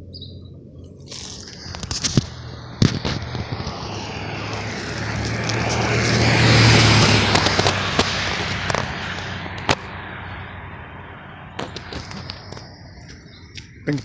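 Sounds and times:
pickup truck driving past: 1.8s - 12.8s.

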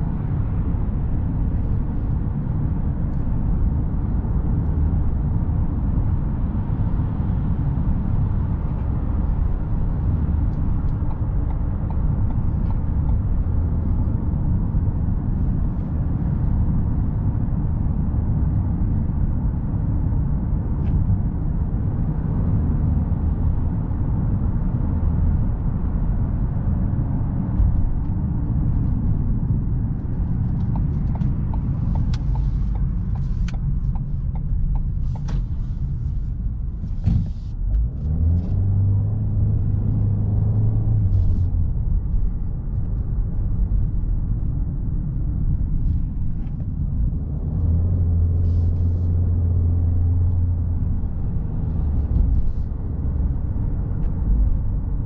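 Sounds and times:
engine and tyre rumble: 0.0s - 55.0s
sharp clicks and knocks: 30.4s - 35.6s.

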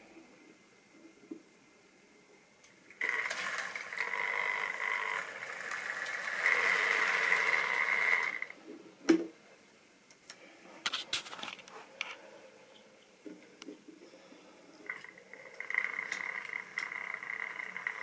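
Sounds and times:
model train motor whining: 3.0s - 8.5s, 14.9s - 18.0s
wheels running on track: 3.0s - 8.5s, 15.0s - 18.0s.

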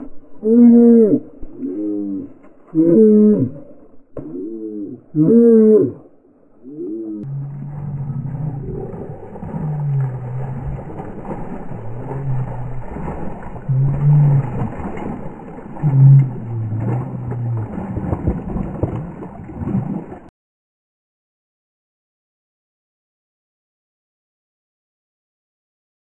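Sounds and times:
dog growling low: 0.4s - 15.2s, 15.8s - 18.1s
dog splashing in muddy water: 7.2s - 20.3s.

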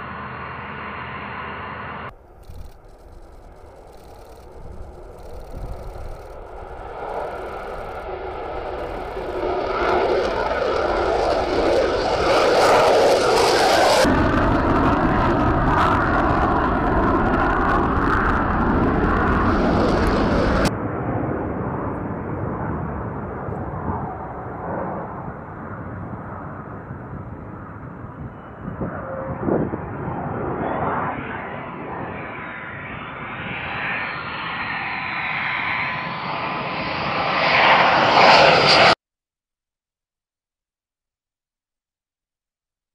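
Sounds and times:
faint rising whine: 0.0s - 20.7s
jet engine roar: 0.0s - 39.0s
muffled jet sound: 0.0s - 39.0s.

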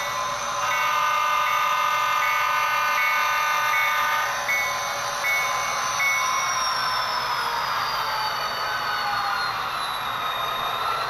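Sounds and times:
crossing bell dinging: 0.0s - 6.6s.

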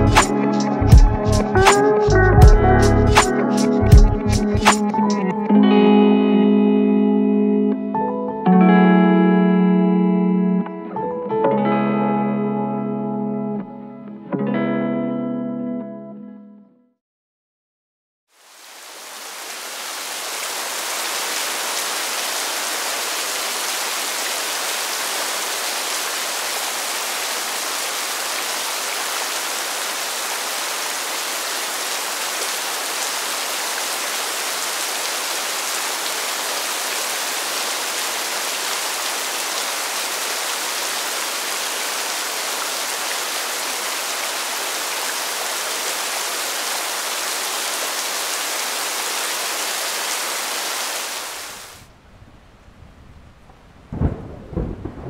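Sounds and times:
steady rain falling: 18.3s - 55.0s.

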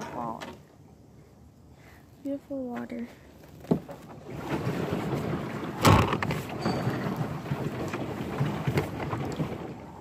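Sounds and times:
water sloshing around boat: 2.6s - 10.0s.

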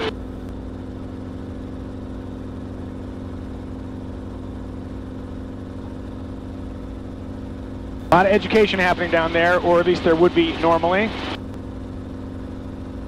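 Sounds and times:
helicopter engine and rotor drone: 0.0s - 13.0s.

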